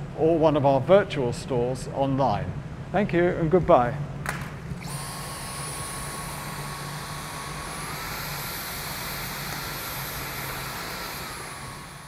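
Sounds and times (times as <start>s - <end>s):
vacuum cleaner motor whine: 4.8s - 12.0s.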